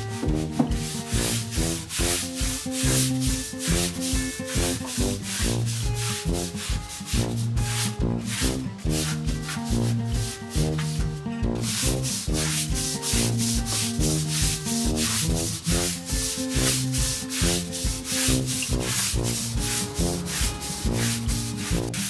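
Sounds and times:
background music with beat: 0.0s - 22.0s
brush scrubbing tile floor: 0.0s - 22.0s.

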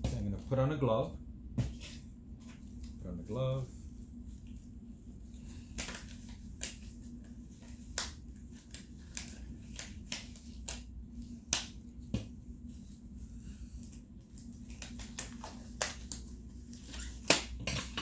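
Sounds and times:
faint steady hum: 0.0s - 18.0s
gloves snapping and crinkling: 13.9s - 17.6s.

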